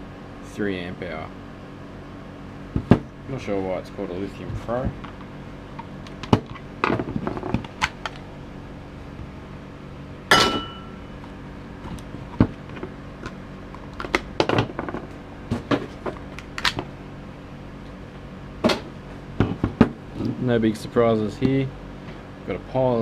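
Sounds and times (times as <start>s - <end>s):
loud ringing clack: 10.3s - 11.0s.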